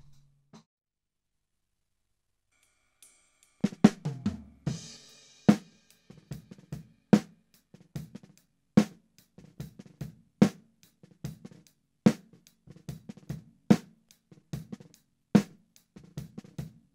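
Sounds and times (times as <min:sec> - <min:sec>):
cymbal wash: 0:02.6 - 0:06.4.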